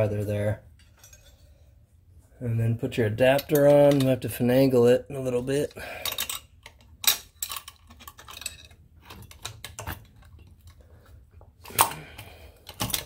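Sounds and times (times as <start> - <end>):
small metal clicks and clinks: 6.0 - 10.8.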